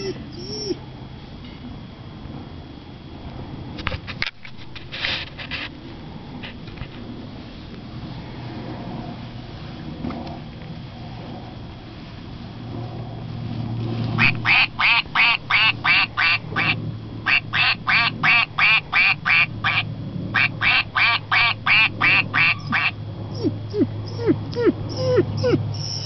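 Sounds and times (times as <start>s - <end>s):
toy duck quacking: 14.2s - 19.8s, 20.4s - 22.9s.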